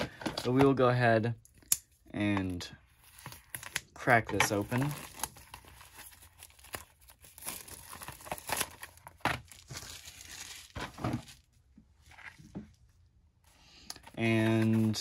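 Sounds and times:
packaging tearing and crinkling: 0:04.5 - 0:11.4.

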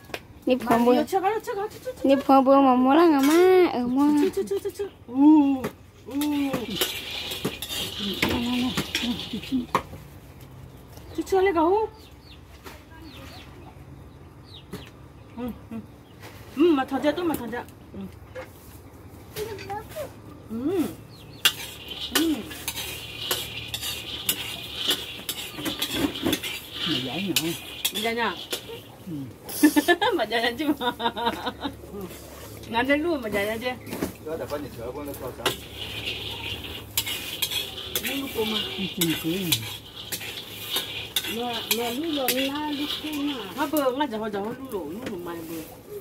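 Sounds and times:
metal spatula scraping wok: 0:00.6 - 0:04.5, 0:06.1 - 0:10.3, 0:21.0 - 0:45.9
spatula clinking against pan: 0:35.4 - 0:43.9.

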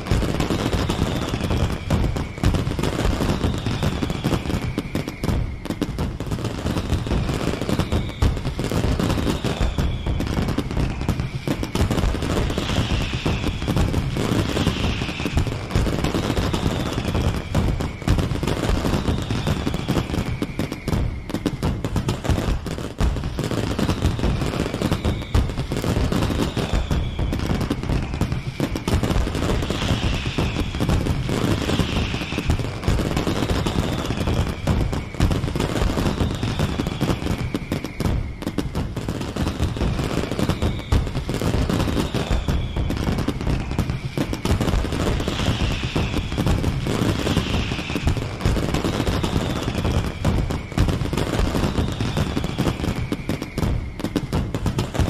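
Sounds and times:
falling firework whistle: 0:00.0 - 0:55.0
fireworks crackling and popping: 0:00.0 - 0:55.0.

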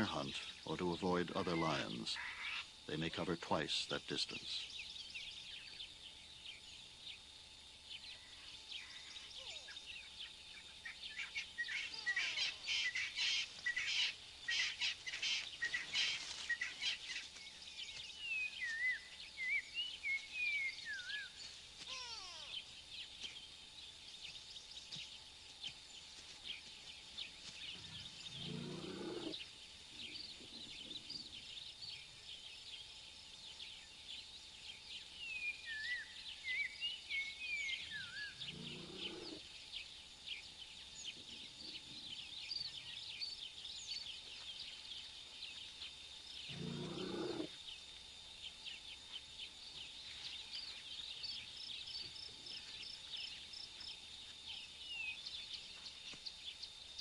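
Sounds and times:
birds chirping and whistling: 0:07.9 - 0:23.5, 0:33.6 - 0:40.4.

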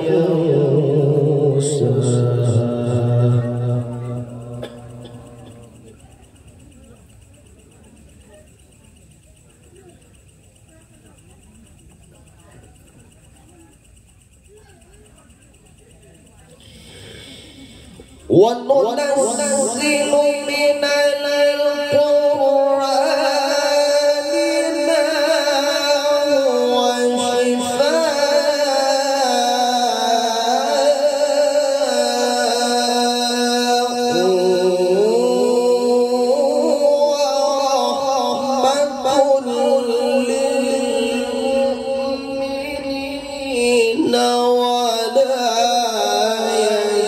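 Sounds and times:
man chanting into microphone: 0:00.0 - 0:06.0, 0:16.6 - 0:47.0.

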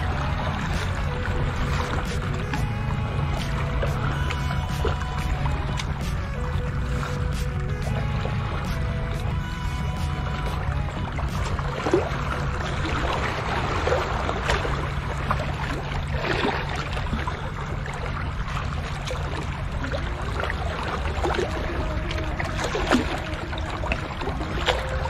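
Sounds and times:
seawater lapping at shore: 0:00.0 - 0:25.0
wind on microphone: 0:00.0 - 0:25.0.

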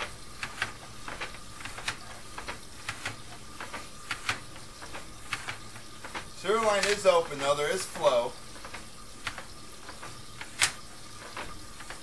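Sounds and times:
cable reel clicks and ticks: 0:00.0 - 0:08.0, 0:08.6 - 0:12.0
faint electrical whine: 0:00.0 - 0:12.0
steady hiss: 0:00.0 - 0:12.0.

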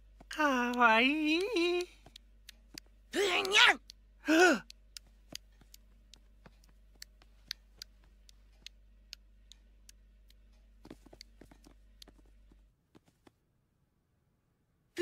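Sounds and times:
cartoon sneaking footstep ticks: 0:00.0 - 0:04.0, 0:04.6 - 0:13.3.

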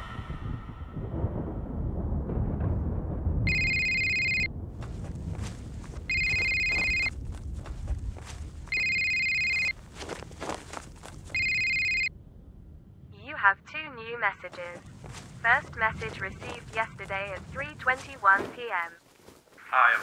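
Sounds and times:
low rumbling drone: 0:00.0 - 0:18.0
phone ringtone ringing: 0:03.5 - 0:04.5, 0:06.1 - 0:07.1, 0:08.7 - 0:09.8, 0:11.3 - 0:12.1.

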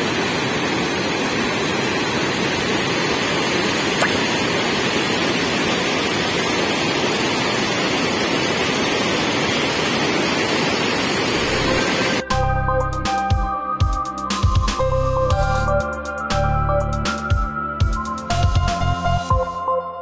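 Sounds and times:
floodwater rushing over rocks: 0:00.0 - 0:12.2.

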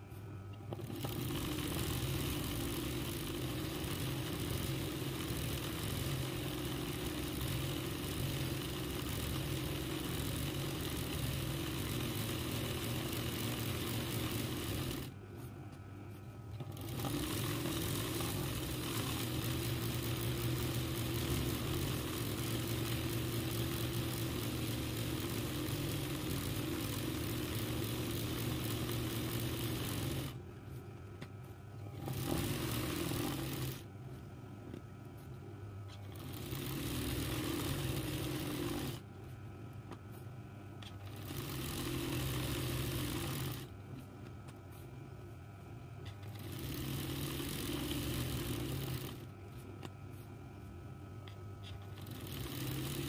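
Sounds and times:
faint motor hum: 0:00.0 - 0:53.0
embroidery machine stitching: 0:00.7 - 0:15.2, 0:16.5 - 0:30.4, 0:31.8 - 0:33.9, 0:35.9 - 0:39.0, 0:40.8 - 0:43.7, 0:46.0 - 0:49.3, 0:51.6 - 0:53.0.

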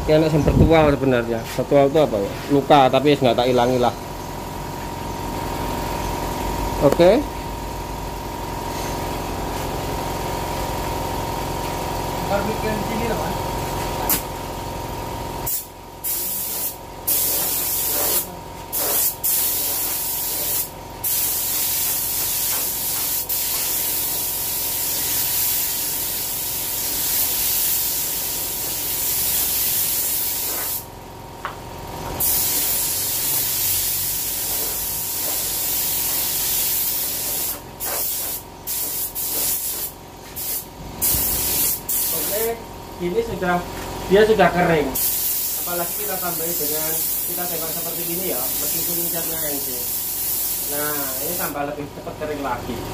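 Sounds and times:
paint spray gun hissing: 0:13.0 - 0:14.4, 0:15.4 - 0:30.9, 0:32.2 - 0:42.6, 0:45.0 - 0:51.6.

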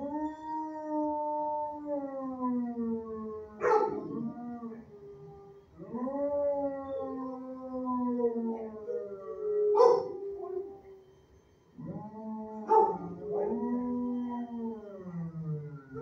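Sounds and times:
dog howling: 0:00.0 - 0:11.0, 0:11.8 - 0:16.0
dog barking: 0:03.6 - 0:04.0, 0:09.8 - 0:10.1, 0:12.7 - 0:13.5.

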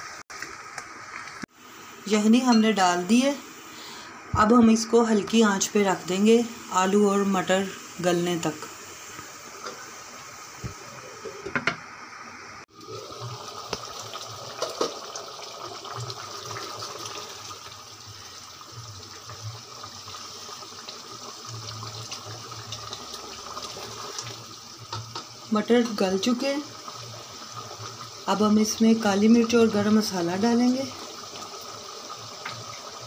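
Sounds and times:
curry simmering in a pot: 0:12.7 - 0:33.0.

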